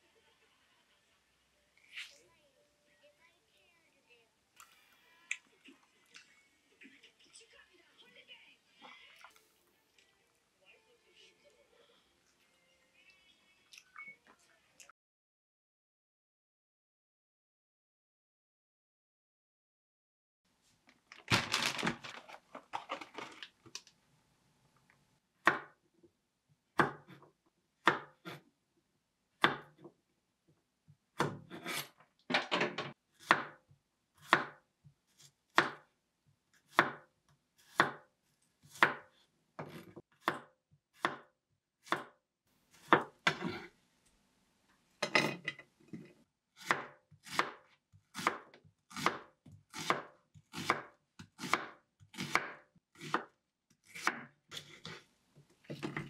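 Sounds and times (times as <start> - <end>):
plastic bag rustling: 20.8 - 23.9.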